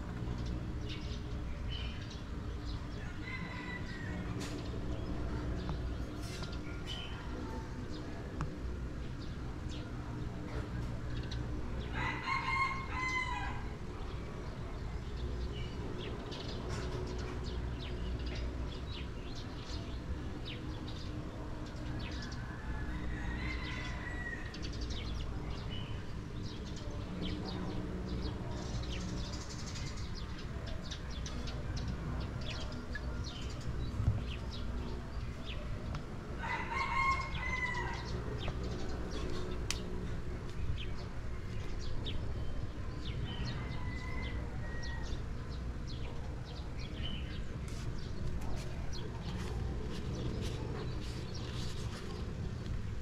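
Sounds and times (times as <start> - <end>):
rooster crowing: 3.0 - 4.4, 11.9 - 13.8, 22.6 - 24.6, 36.4 - 38.2, 43.3 - 45.2.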